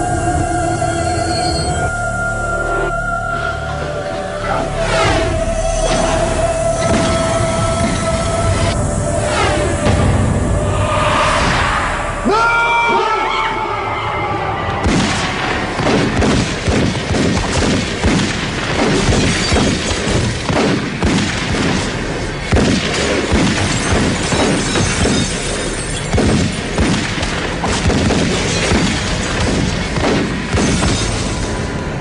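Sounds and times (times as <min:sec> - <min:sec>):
music: 0:00.0 - 0:32.0
booms crashes and impacts: 0:14.8 - 0:32.0.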